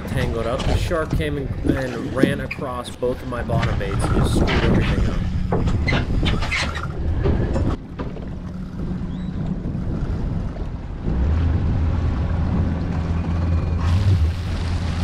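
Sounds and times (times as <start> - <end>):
outboard engines running: 3.0 - 15.0.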